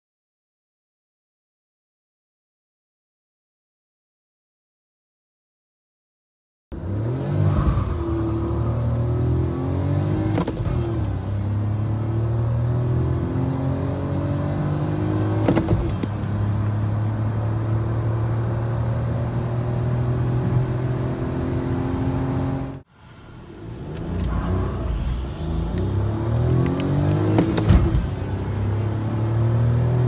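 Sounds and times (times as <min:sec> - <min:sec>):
car engine accelerating: 0:06.7 - 0:30.0.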